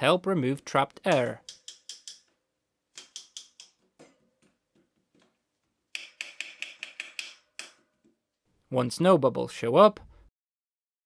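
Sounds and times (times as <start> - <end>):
tool tapping on brake lever: 1.1 - 2.3, 3.0 - 3.8.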